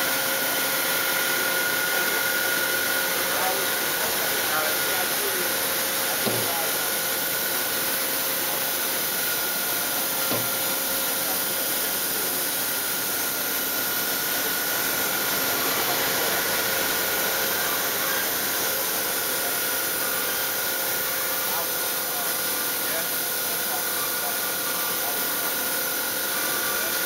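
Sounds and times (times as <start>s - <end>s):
boring mill whirring: 0.0s - 27.0s.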